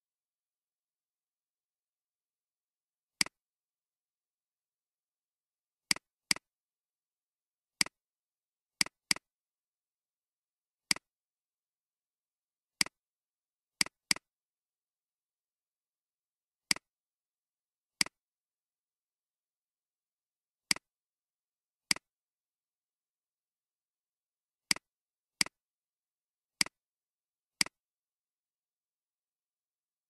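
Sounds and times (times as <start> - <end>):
computer mouse clicks: 5.9 - 6.5, 8.8 - 9.3, 10.9 - 11.1, 13.8 - 14.3, 16.7 - 16.9, 20.7 - 20.9, 21.9 - 22.1, 26.6 - 26.8, 27.6 - 27.8.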